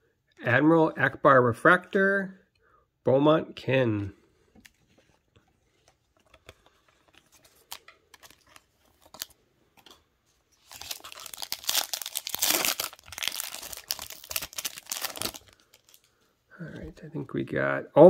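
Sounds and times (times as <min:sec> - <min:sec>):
plastic sleeve rustling: 0:04.6 - 0:16.2
foil wrapper tearing and crinkling: 0:10.6 - 0:16.1.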